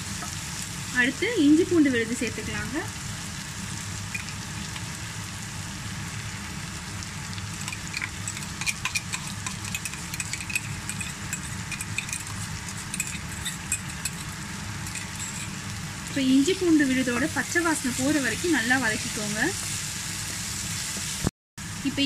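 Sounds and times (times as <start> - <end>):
onions sizzling in oil: 0.0 - 22.0
steady low hum: 4.0 - 18.6.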